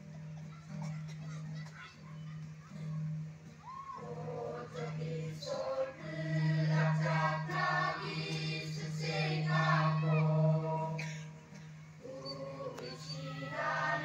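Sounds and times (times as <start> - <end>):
choir singing a hymn: 4.0 - 14.0.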